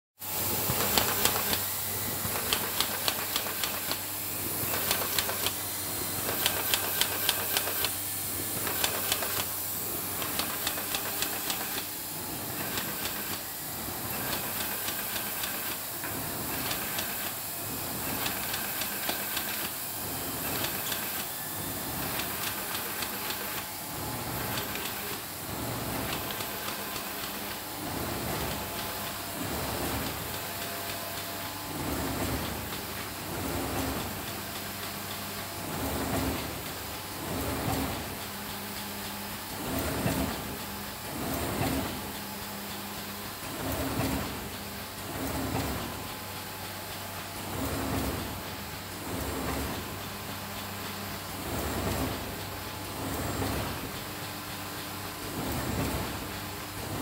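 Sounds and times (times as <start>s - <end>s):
machine hiss and hum: 0.2s - 57.0s
quick mechanical clicks: 0.6s - 5.6s, 6.2s - 8.0s, 8.6s - 9.6s, 10.2s - 12.0s.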